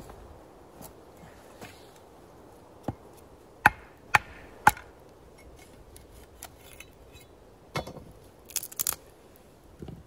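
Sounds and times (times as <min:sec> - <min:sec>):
machete chopping wood: 0:03.6 - 0:04.9.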